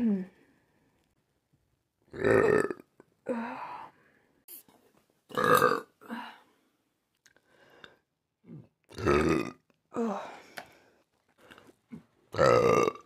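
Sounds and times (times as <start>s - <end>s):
woman burping: 2.1s - 3.5s, 5.3s - 6.2s, 8.5s - 10.2s, 12.4s - 13.0s.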